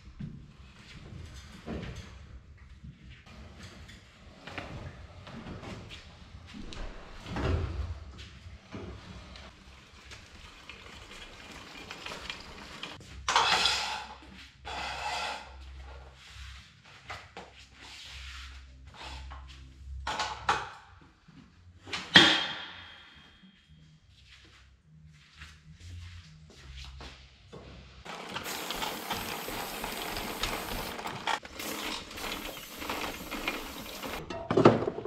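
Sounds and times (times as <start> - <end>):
motorbike clunking and scraping: 28.0 - 35.0.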